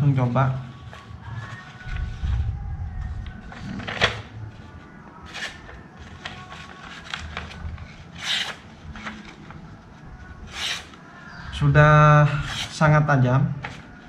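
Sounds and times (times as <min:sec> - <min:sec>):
paper rustling: 0:00.2 - 0:11.3.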